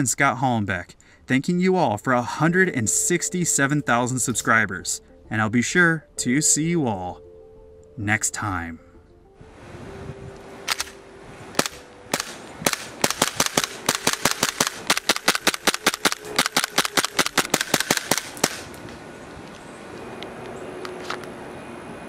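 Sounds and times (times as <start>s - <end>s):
airsoft pistol shots: 11.6s - 18.8s.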